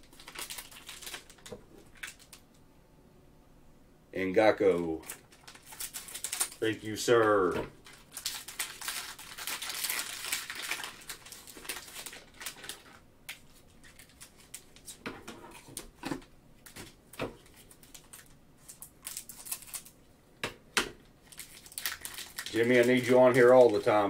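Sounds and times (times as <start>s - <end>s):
foil wrappers crinkling: 0.0s - 2.4s, 5.0s - 15.0s, 16.6s - 20.0s, 21.2s - 24.0s.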